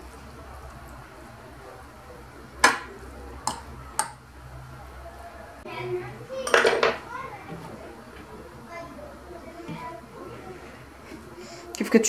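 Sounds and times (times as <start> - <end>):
utensil clicking on clay dish: 3.4 - 4.2.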